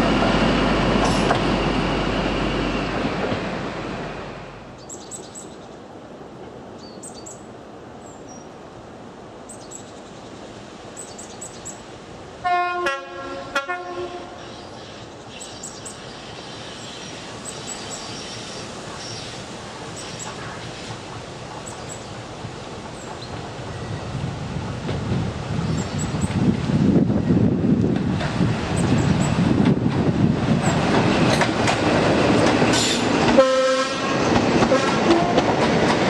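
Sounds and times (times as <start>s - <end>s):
train rumble approaching: 0.0s - 4.9s, 15.8s - 36.0s
two-tone train horn: 12.4s - 14.4s, 32.8s - 35.4s.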